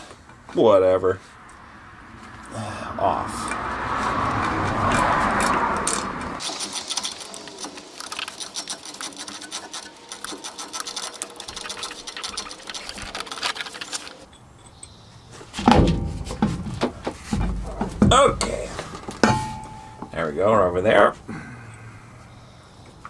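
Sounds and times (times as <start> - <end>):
ratchet wrench clicking: 4.9 - 15.0.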